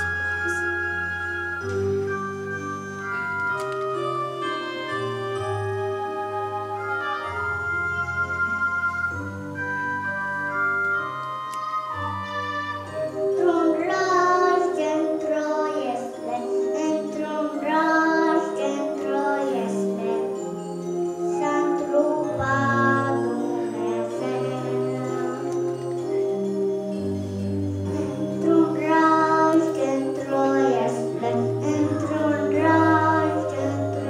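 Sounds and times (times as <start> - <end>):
keyboard chords: 0.0 - 34.0
voices singing: 27.9 - 34.0.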